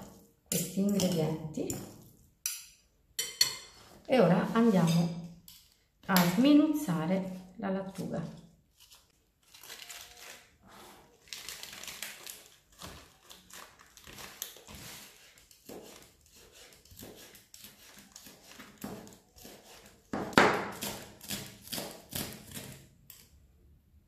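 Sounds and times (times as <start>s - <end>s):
knife slicing lettuce on a board: 12.7s - 22.8s.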